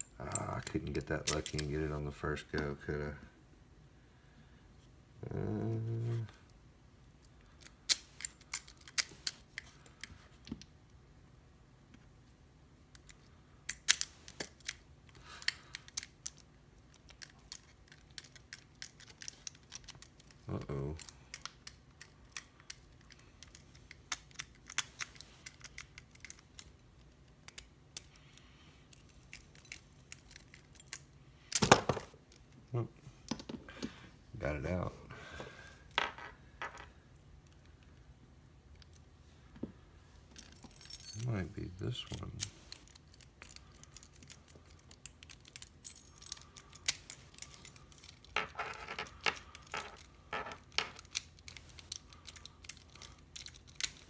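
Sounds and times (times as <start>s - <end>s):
keys and padlocks clinking: 15.4s - 26.8s, 28.9s - 32.5s, 40.3s - 54.0s.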